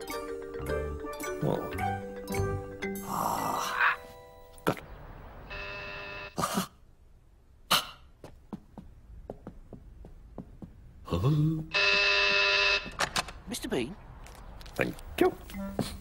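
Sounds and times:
vocal grunt: 3.0 - 4.0, 11.1 - 11.7.

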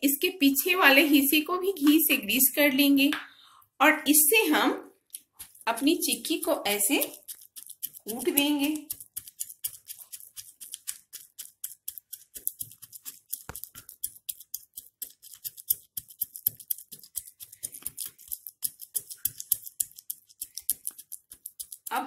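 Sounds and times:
rolling pin pounding seeds: 5.4 - 22.0.

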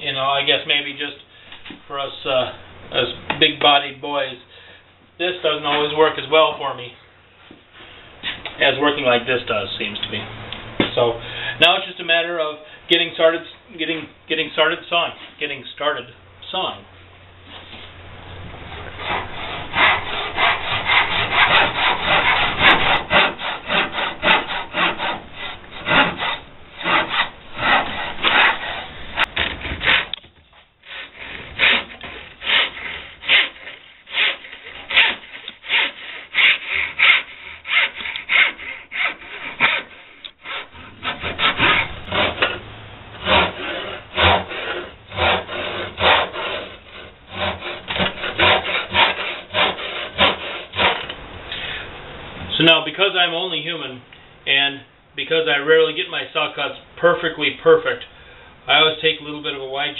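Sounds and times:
hand saw cutting wood: 18.7 - 51.2.

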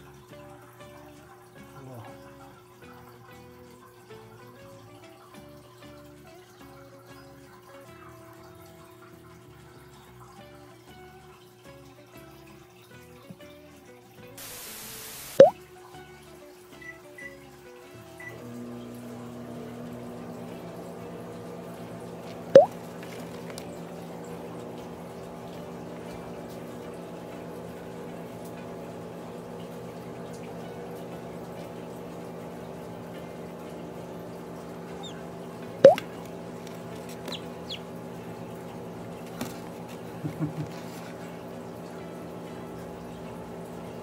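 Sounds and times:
microwave oven humming: 14.4 - 44.0
chick peeping: 37.2 - 37.9.

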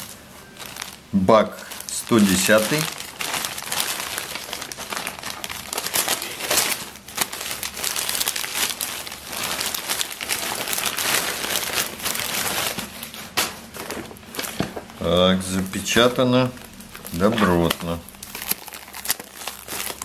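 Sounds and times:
plastic-wrapped box drawn out: 0.0 - 15.2, 15.9 - 20.0
plastic mailer bag crinkling: 0.0 - 20.0.

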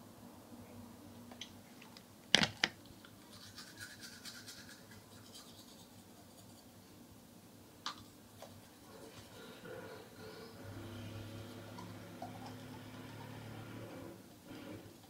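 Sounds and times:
toothbrush scrubbing teeth: 3.2 - 6.8, 11.5 - 13.6.

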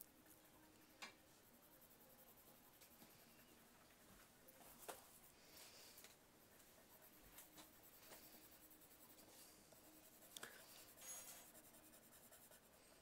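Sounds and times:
pencil scratching on paper: 1.4 - 3.6, 4.7 - 5.8, 6.4 - 13.0.

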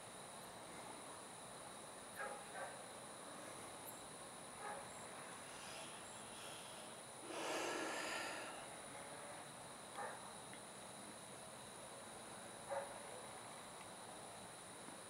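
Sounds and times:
steady hiss: 0.0 - 15.0
breathy rush of noise: 5.4 - 8.8.

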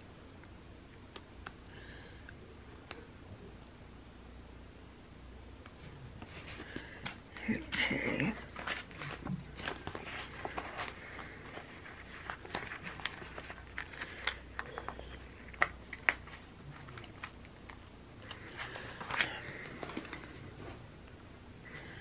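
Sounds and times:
paper rustling: 6.2 - 20.9.

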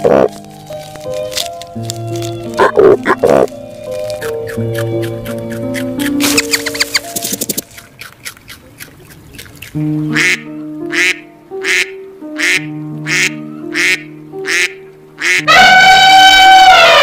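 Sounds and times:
background music with held notes: 0.0 - 8.1, 9.2 - 17.0
duck quacking: 2.6 - 3.5, 4.2 - 7.2, 8.4 - 17.0.

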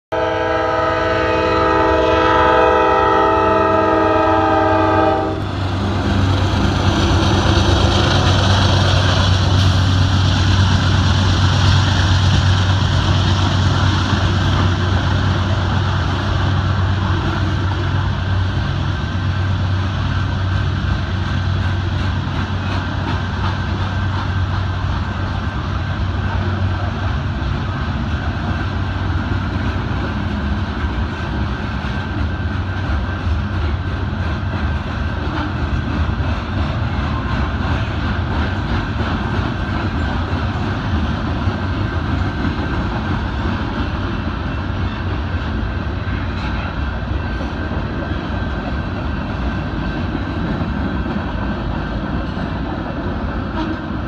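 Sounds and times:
locomotive air horn: 0.1 - 5.6, 53.5 - 53.8
train wheels rumbling on rails: 0.1 - 54.0.

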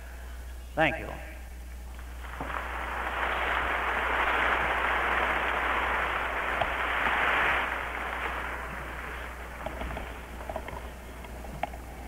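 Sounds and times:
steady low hum: 0.0 - 12.0
crowd applauding: 2.2 - 11.0.

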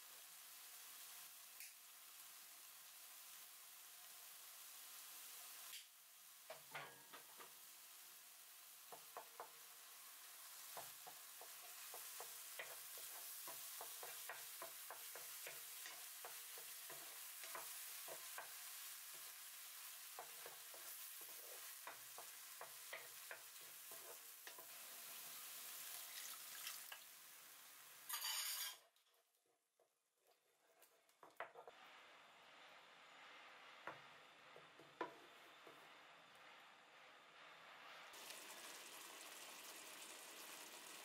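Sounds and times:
water hissing in a hot pan: 0.0 - 28.4, 37.5 - 41.0
sauce sizzling in a pan: 0.0 - 28.7, 37.7 - 41.0
wooden spatula scraping a pan: 10.5 - 25.6.

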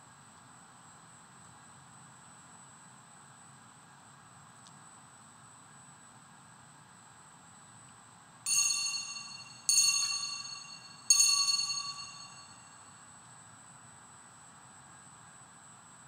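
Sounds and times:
bell ringing: 8.5 - 12.8.

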